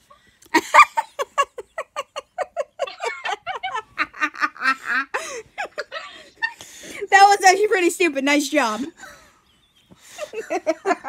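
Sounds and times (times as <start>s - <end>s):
laughter: 0.5s - 6.6s, 10.0s - 11.0s.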